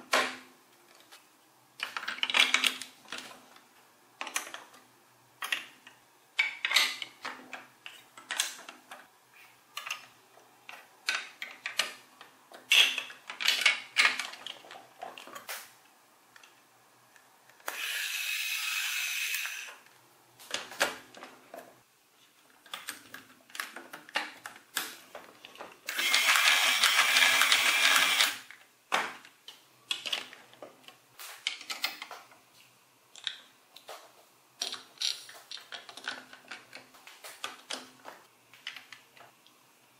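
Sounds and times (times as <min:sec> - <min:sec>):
plastic blocks clicking together: 0:09.7 - 0:15.6, 0:22.6 - 0:28.6, 0:29.2 - 0:32.2, 0:33.1 - 0:33.9, 0:34.6 - 0:39.6
toy electric motor whirring: 0:17.7 - 0:19.8, 0:25.9 - 0:28.5.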